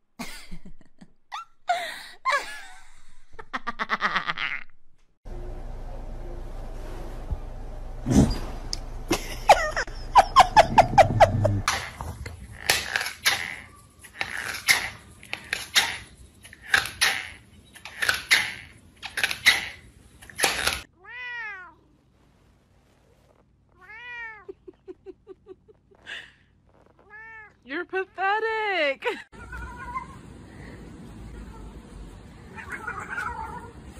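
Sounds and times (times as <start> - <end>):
noisy scratchy sounds: 21.8 - 23.8
cat high cries: 29.3 - 30.2, 32.5 - 33.8.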